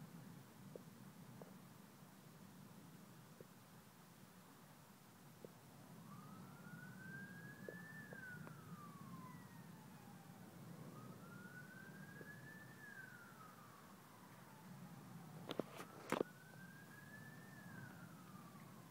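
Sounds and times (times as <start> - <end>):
faint steady hum: 0.0 - 18.9
emergency vehicle siren wailing: 5.8 - 18.9.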